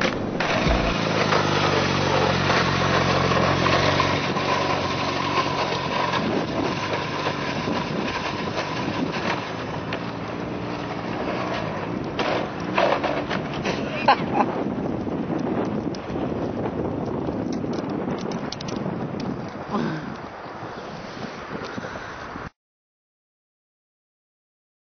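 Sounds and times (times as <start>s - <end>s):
moped engine running: 0.0s - 10.9s.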